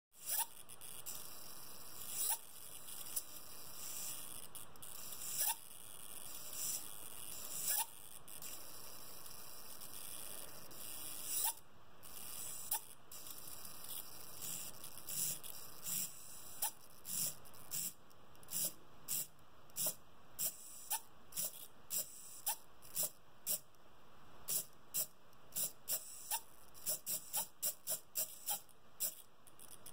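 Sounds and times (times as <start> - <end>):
servo buzzing with high hum: 0.2 - 23.8, 24.4 - 29.9
servo sharp twitches: 6.3 - 23.6, 24.5 - 29.3.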